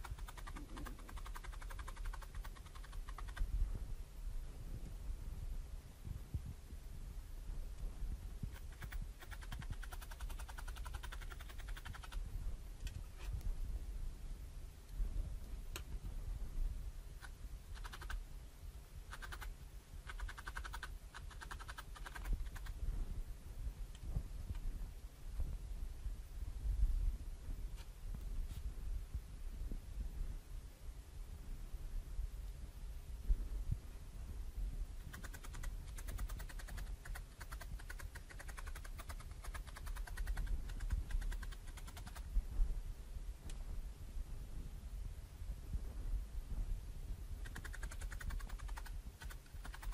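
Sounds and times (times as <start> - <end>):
felting needle clicking: 0.0 - 3.4, 8.5 - 12.2, 17.2 - 18.2, 19.1 - 19.5, 20.1 - 22.8, 35.0 - 42.2, 47.4 - 49.9.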